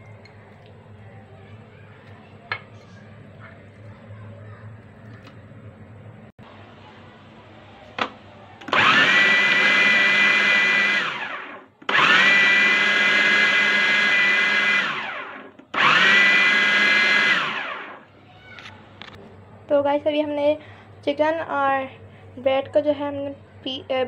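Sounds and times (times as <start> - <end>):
food processor motor whining: 8.6 - 18.1.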